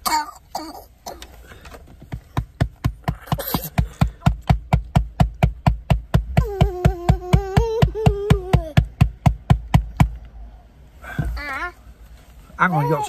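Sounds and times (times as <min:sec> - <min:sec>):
child vocalizing ahh: 0:06.4 - 0:08.8.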